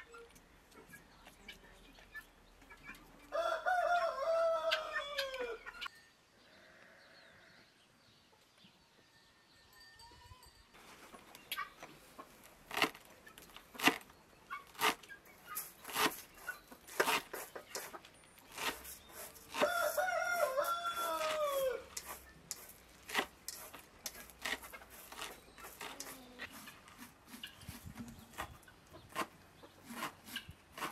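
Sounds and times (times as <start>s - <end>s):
rooster crowing: 3.3s - 5.6s, 19.6s - 21.9s.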